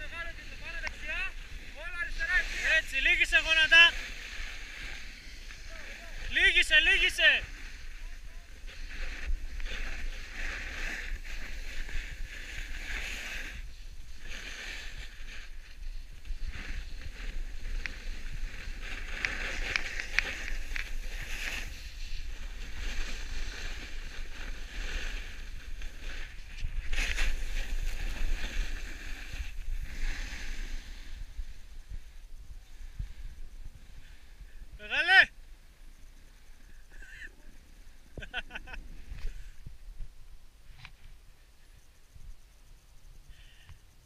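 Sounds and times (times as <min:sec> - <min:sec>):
edges scraping over snow: 0:00.0 - 0:31.7
wind rumbling on microphone: 0:00.0 - 0:34.8, 0:37.4 - 0:43.4.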